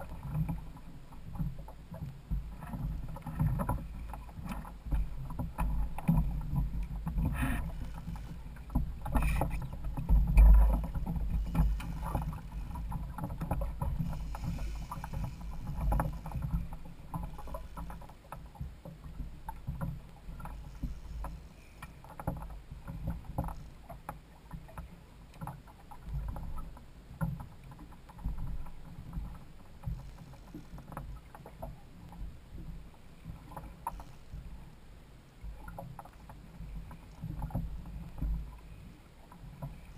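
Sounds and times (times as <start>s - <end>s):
wind rumble on microphone: 0.0s - 21.6s
small clicks and knocks: 0.0s - 32.7s
water lapping against hull: 0.0s - 39.9s.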